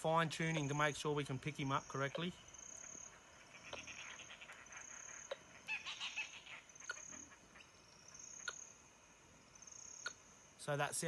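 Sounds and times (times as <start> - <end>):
faint hiss: 0.0 - 11.0
insects chirping: 0.0 - 11.0
bird calling: 0.4 - 8.9.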